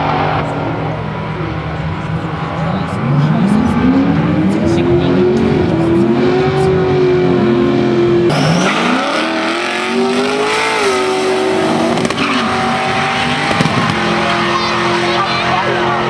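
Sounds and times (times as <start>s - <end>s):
drag car engines at full throttle: 0.0s - 16.0s.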